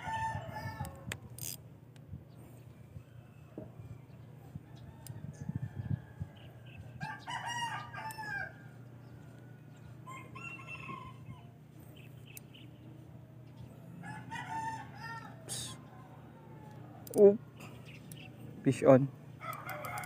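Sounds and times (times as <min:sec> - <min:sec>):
rooster crowing: 0:00.0 - 0:01.1, 0:03.1 - 0:11.6, 0:13.9 - 0:17.1, 0:19.4 - 0:20.0
steady low hum: 0:00.0 - 0:20.0.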